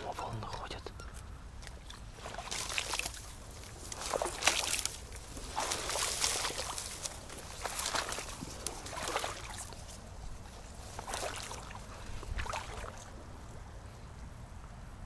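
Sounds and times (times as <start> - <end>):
low wind rumble: 0.0 - 15.0
shallow water sloshing and splashing: 1.6 - 13.2.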